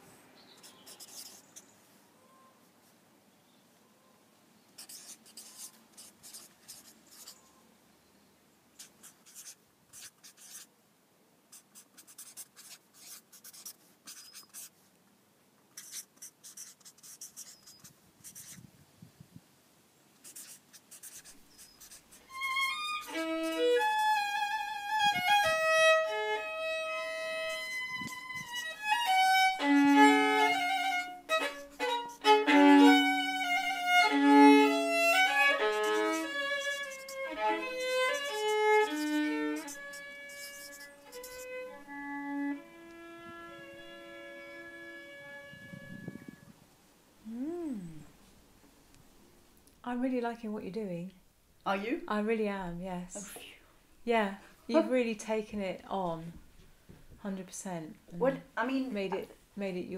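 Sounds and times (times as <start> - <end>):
marker scratching on paper: 0.6 - 1.7, 4.8 - 7.4, 8.8 - 10.7, 11.5 - 14.7, 15.8 - 18.6, 20.2 - 24.1, 35.3 - 41.6
violin melody: 22.2 - 46.5.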